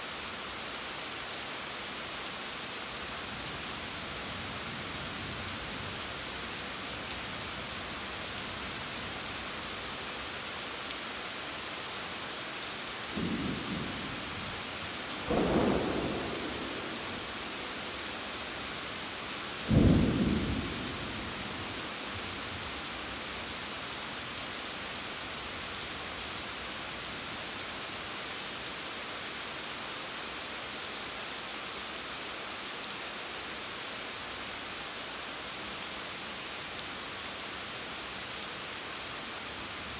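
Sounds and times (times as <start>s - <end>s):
steady rain: 0.0s - 39.9s
thunder claps: 15.2s - 17.8s, 19.7s - 21.2s.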